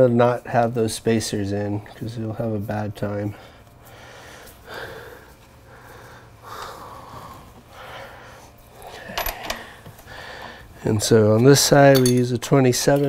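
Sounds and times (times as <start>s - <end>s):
man breathing: 3.3s - 10.8s.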